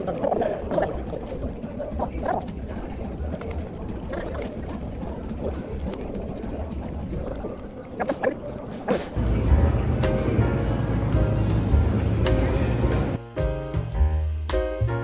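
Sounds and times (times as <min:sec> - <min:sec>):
faint indistinct voices: 0:00.0 - 0:13.2
low steady rumble: 0:09.2 - 0:13.2.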